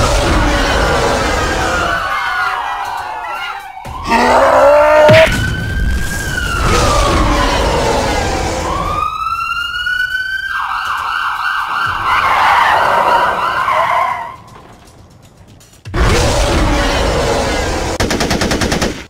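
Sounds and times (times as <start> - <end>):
police siren wailing and yelping: 0.9 - 14.5.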